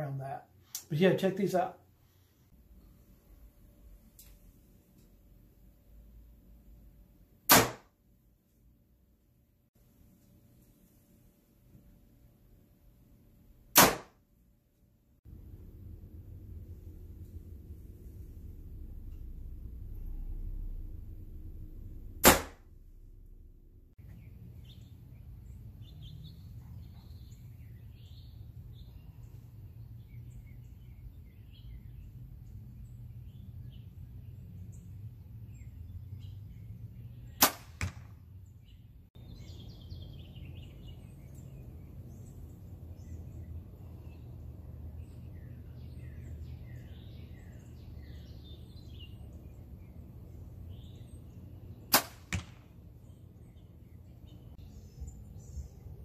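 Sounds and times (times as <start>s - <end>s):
birds chirping faintly: 15.2s - 56.0s
bow string snapping: 22.2s - 22.8s.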